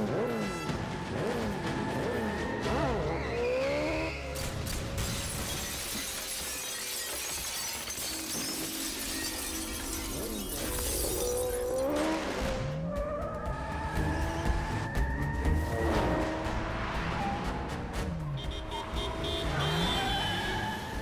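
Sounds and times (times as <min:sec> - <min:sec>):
dramatic film music: 0:00.0 - 0:05.1, 0:11.5 - 0:21.0
glass window shattering: 0:04.4 - 0:11.8
glass shards showering down: 0:05.2 - 0:11.6.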